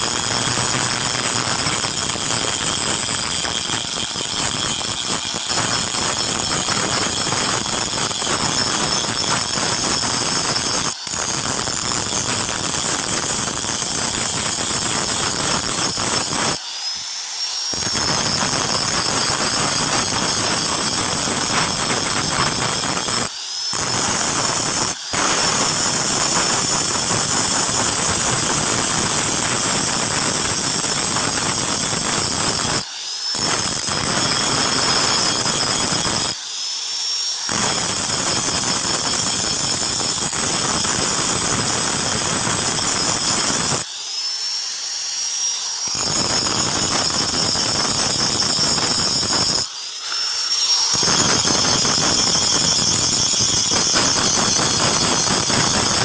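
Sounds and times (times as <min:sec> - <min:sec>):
angle grinder motor whine: 0:00.0 - 0:56.0
disc grinding steel hiss: 0:00.0 - 0:56.0.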